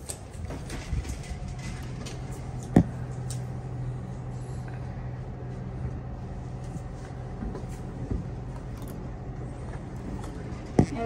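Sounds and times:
vehicle engine drone: 0:00.0 - 0:11.0.

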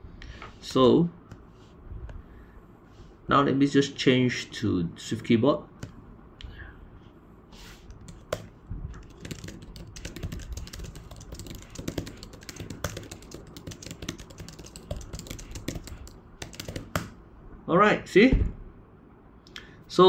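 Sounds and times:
fast keyboard typing: 0:07.9 - 0:17.2.

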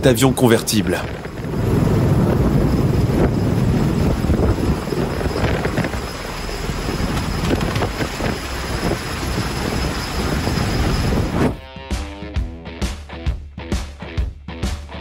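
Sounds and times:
aircraft rotor and engine noise: 0:00.0 - 0:11.6.

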